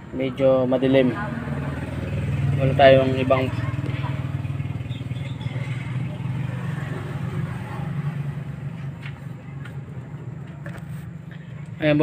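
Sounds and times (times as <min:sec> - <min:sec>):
low engine hum: 0:00.7 - 0:12.0.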